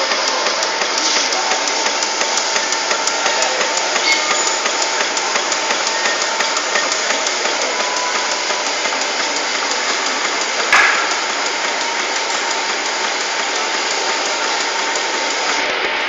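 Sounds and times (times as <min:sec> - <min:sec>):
machine clattering: 0:00.0 - 0:15.6
loud knock with ring: 0:10.7 - 0:11.2.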